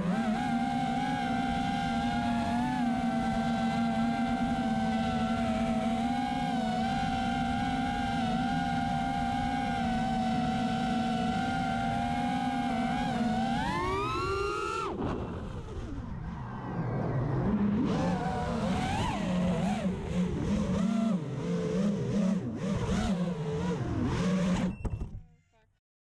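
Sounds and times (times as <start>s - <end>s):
drone motors whining: 0.0s - 25.2s.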